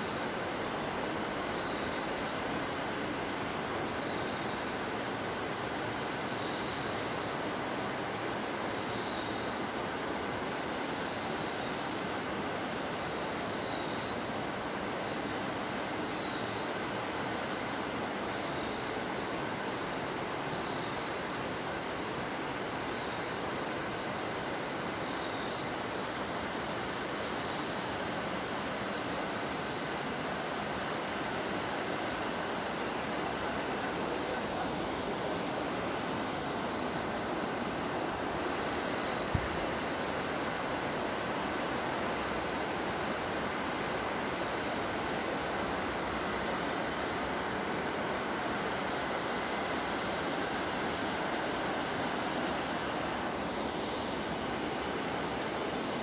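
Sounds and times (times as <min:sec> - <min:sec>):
water hiss: 0:00.0 - 0:56.0
river rushing over rocks: 0:29.4 - 0:56.0.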